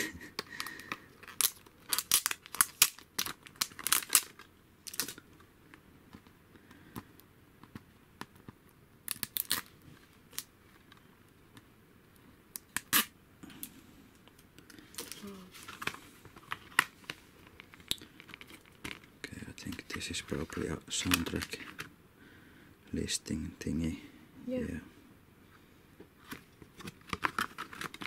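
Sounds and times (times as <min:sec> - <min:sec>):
plastic packaging crinkling: 0:00.4 - 0:05.4, 0:09.0 - 0:10.9, 0:14.7 - 0:21.9, 0:26.2 - 0:28.0.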